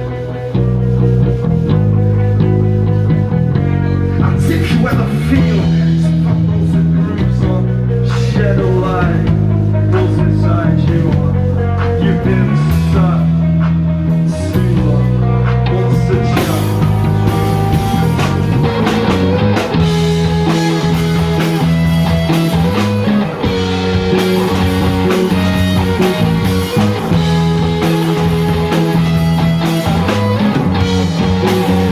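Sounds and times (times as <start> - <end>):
bass guitar: 0.0 - 31.9
drum kit with cymbal hits: 0.0 - 31.9
electric guitars: 0.0 - 31.9
man singing: 4.0 - 17.4.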